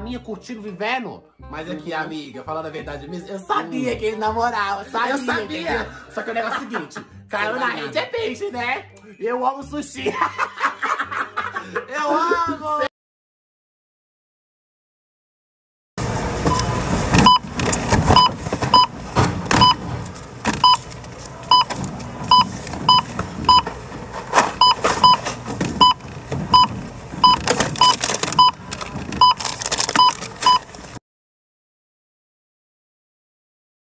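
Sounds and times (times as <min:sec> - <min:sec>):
barcode scanner beeping: 0:16.5 - 0:17.4, 0:18.1 - 0:18.9, 0:19.6 - 0:19.8, 0:20.6 - 0:20.9, 0:21.5 - 0:21.7, 0:22.3 - 0:23.7, 0:24.6 - 0:30.7
plastic packaging rustling: 0:26.2 - 0:31.0.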